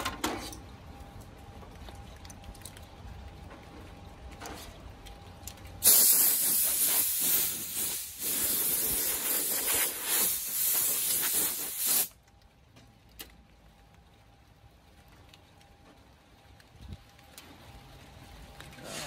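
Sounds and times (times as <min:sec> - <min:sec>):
compressed air blow gun hissing: 0:05.8 - 0:12.1.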